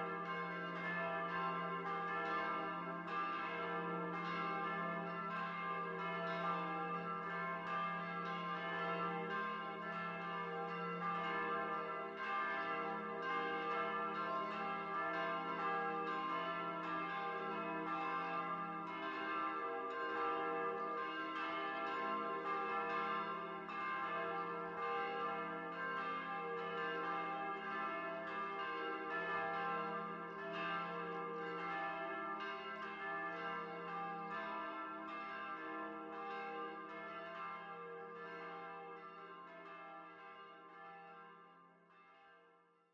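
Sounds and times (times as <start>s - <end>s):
church bell ringing: 0.0s - 42.3s.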